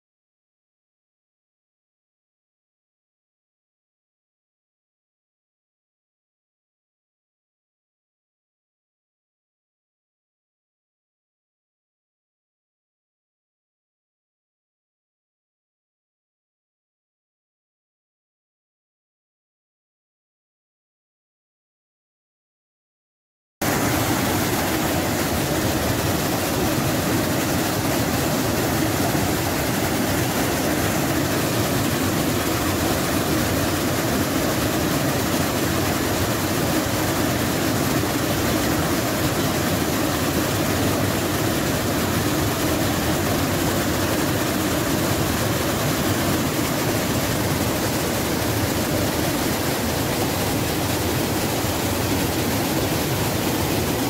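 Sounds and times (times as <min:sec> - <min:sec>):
waterfall roaring over rocks: 0:23.6 - 0:54.0.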